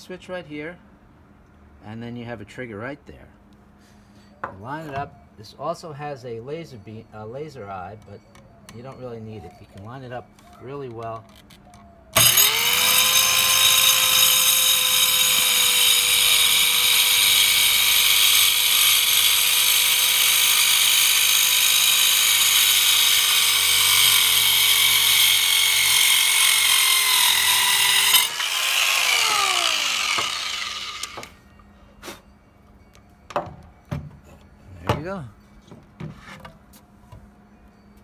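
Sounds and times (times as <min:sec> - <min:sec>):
circular saw whining: 0:12.1 - 0:31.7.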